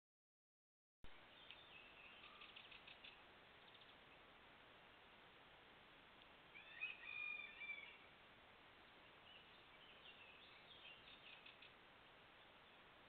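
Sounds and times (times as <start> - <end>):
faint hiss: 1.1 - 13.0
faint bird chirps: 1.2 - 4.3, 6.5 - 8.1, 8.8 - 13.0.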